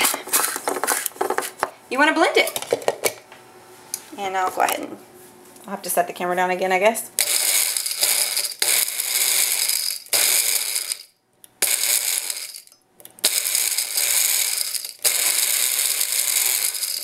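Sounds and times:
blender grinding: 7.2 - 17.0.

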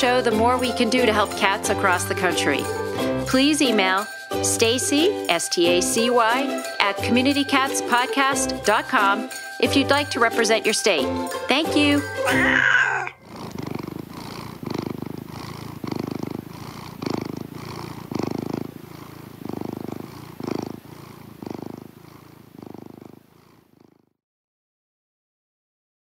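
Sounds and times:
cat purring: 0.0 - 5.8, 11.8 - 24.2.

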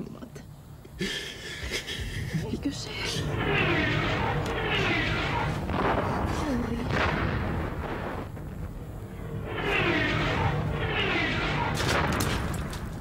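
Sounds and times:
low rumble of bombardment: 1.8 - 13.0
artillery shells whistling: 3.1 - 13.0
sharp blasts: 3.1 - 13.0.

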